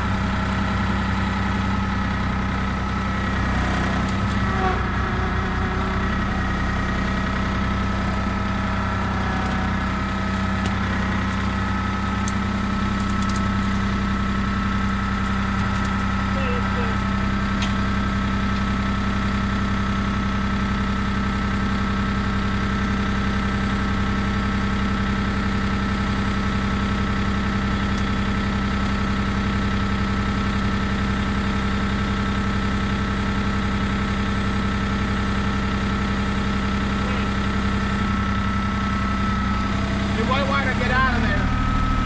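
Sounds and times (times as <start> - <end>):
constant whine: 0.0 - 18.9, 35.0 - 42.0
tractor diesel engine running: 0.0 - 42.0.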